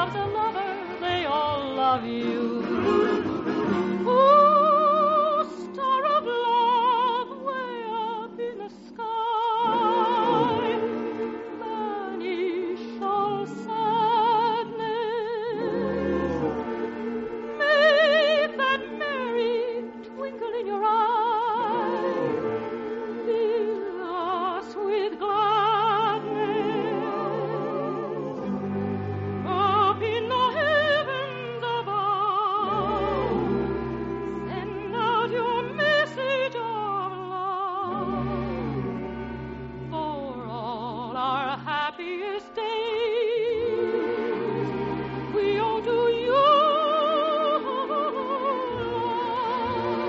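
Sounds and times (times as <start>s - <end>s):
orchestral accompaniment: 0.0s - 8.4s, 9.0s - 50.0s
operatic singing: 0.0s - 50.0s.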